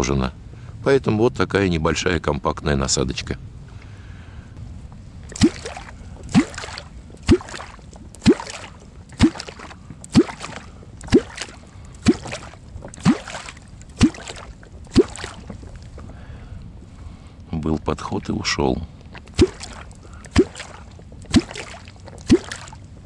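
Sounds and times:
hollow bloop with splash in water: 5.3 - 16.0, 19.1 - 22.9.

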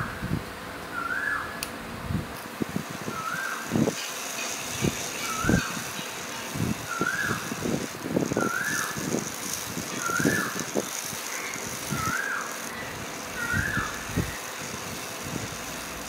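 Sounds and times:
model wheels rattling and knocking: 3.8 - 16.0.

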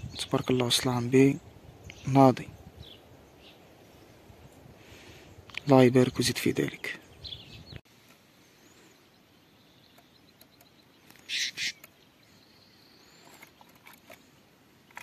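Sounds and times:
harsh bird calls: 4.8 - 7.8, 8.4 - 14.4.

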